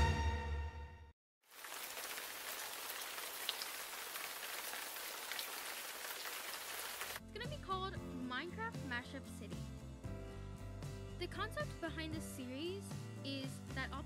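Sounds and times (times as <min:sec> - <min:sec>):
music: 0:00.0 - 0:01.2, 0:07.2 - 0:14.0
rain falling: 0:01.5 - 0:07.2.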